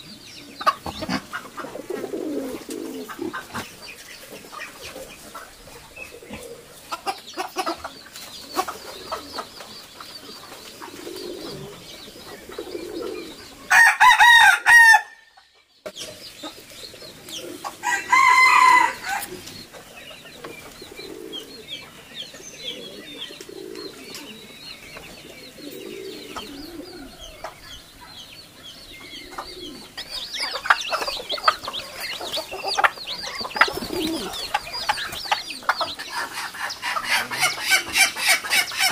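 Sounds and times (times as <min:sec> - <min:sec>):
hens clucking: 0:00.0 - 0:14.6, 0:15.4 - 0:38.9
rooster crowing: 0:13.7 - 0:15.3, 0:17.8 - 0:19.3.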